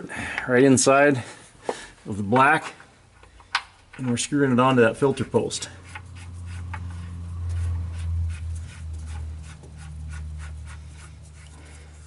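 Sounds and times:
steady low hum: 2.8 - 12.0
filter adapter scraping and clicking: 5.8 - 10.1.

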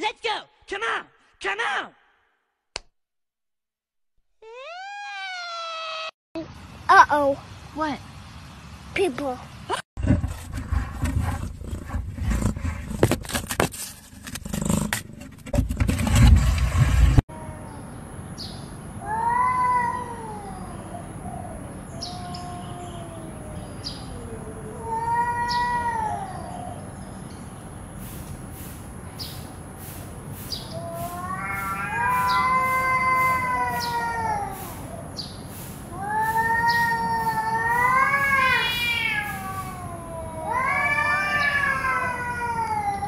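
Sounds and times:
cats yowling: 4.4 - 6.1, 19.0 - 26.9, 30.6 - 35.2, 35.8 - 43.0.

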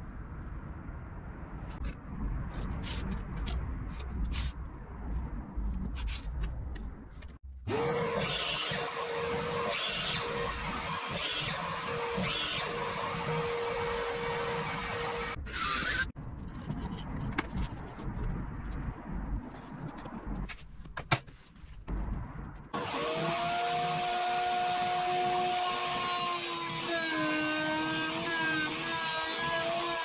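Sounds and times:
miter saw cutting plywood: 7.7 - 16.1, 22.8 - 30.0.

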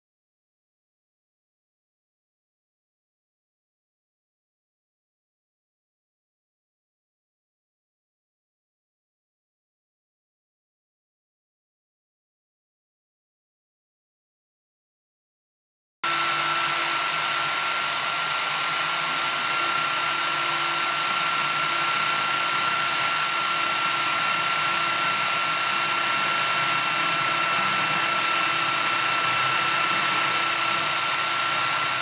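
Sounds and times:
electric drill motor whine: 16.0 - 32.0.

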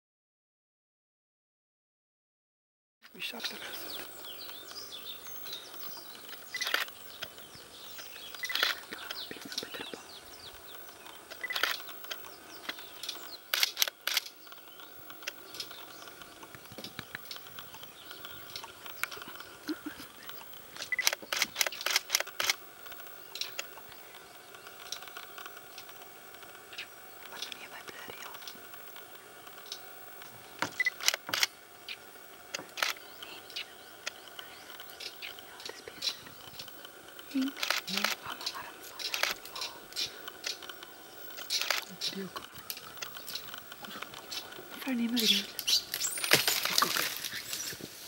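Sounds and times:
birds chirping: 3.1 - 48.0
camera shutter clicks: 6.5 - 6.9, 8.4 - 8.8, 11.3 - 14.4, 20.8 - 22.6, 30.8 - 31.5, 32.6 - 33.0, 37.4 - 38.3, 39.1 - 39.6, 41.4 - 41.9.

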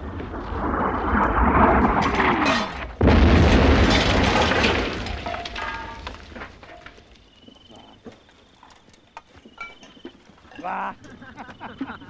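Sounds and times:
loud explosion rumbling: 0.0 - 6.7.

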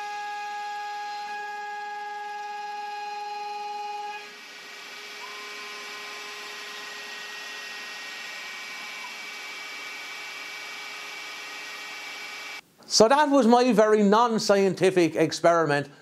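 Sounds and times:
milling motor whining and running: 0.0 - 12.6.

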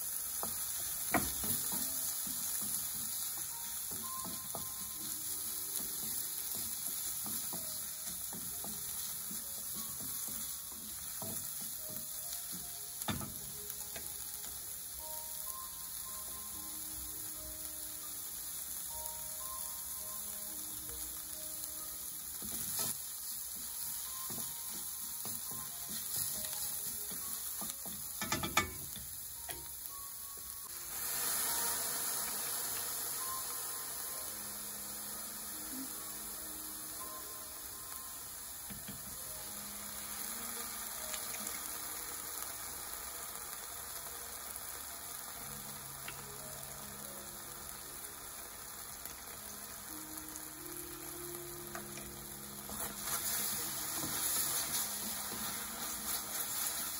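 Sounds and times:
vegetables sizzling in a frying pan: 0.0 - 56.9
utensil knocking against pan: 28.0 - 28.9.

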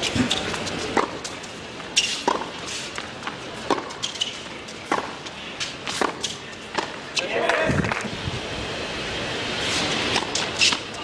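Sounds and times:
tennis ball hit by racquets: 2.0 - 2.5, 3.2 - 4.3, 4.9 - 5.2, 5.9 - 8.0.

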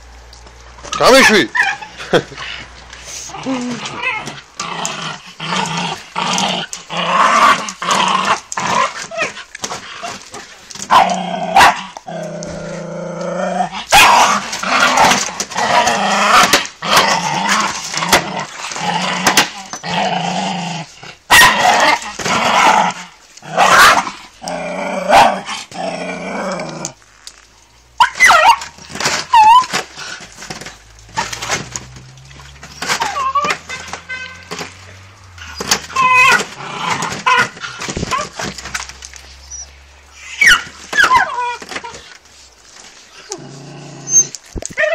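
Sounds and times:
dog growling: 1.2 - 27.0, 43.2 - 44.9
dog barking: 10.9 - 11.8, 21.3 - 21.7.

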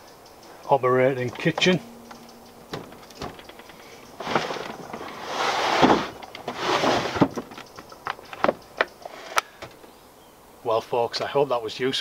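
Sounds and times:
metal latch clicks: 1.2 - 3.8
wooden panels scraping and knocking: 2.7 - 9.4.

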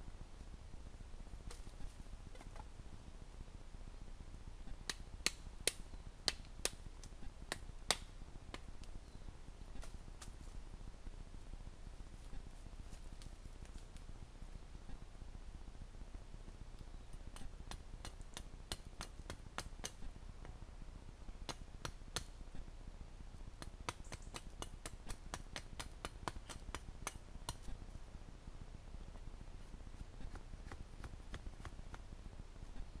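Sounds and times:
sharp clicks and snaps of dry sticks: 4.8 - 9.0, 16.8 - 20.6, 21.4 - 22.4, 23.6 - 27.8, 30.2 - 32.1.

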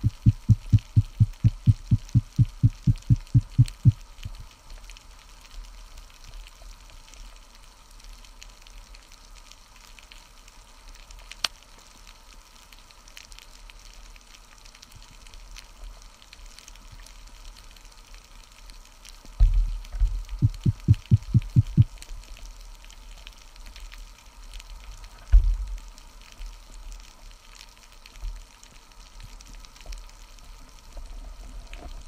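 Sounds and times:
low hum: 0.0 - 4.0, 20.0 - 22.0
underwater crackle of ticks: 0.0 - 32.0.

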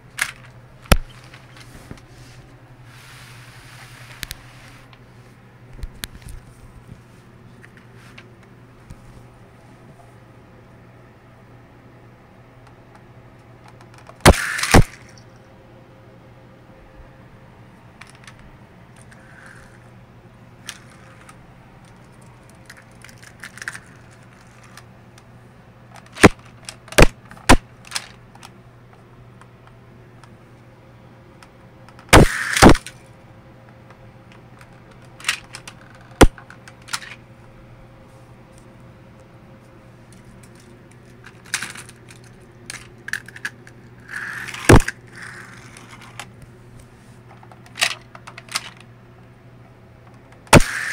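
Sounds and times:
faint steady hum: 0.0 - 50.9
toy cars clicking and clacking: 20.7 - 24.8, 27.4 - 28.5, 35.0 - 36.1, 36.8 - 37.2, 41.2 - 43.5, 44.1 - 46.3, 47.4 - 48.8.

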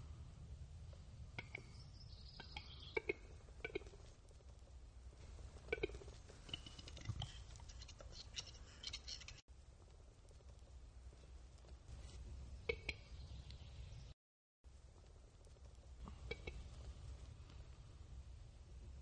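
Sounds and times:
bird display clicks and scratchy notes: 5.6 - 9.4.

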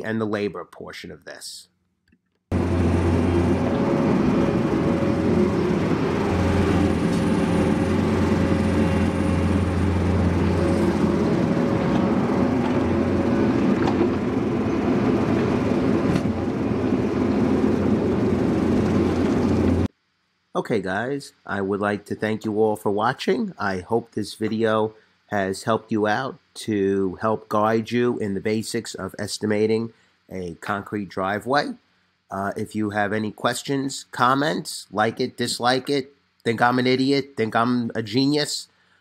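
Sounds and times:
diesel engine humming: 2.5 - 19.9.

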